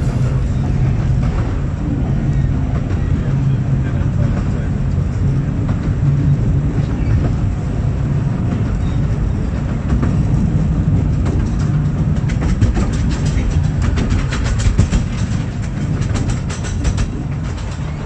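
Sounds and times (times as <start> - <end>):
train rumbling: 0.0 - 18.0
wheel clicks over rail joints: 11.2 - 18.0.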